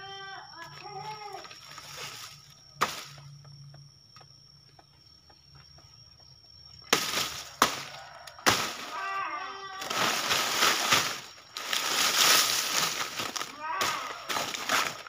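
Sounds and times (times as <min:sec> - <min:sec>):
leaves rustling: 0:00.6 - 0:03.2, 0:06.9 - 0:15.0.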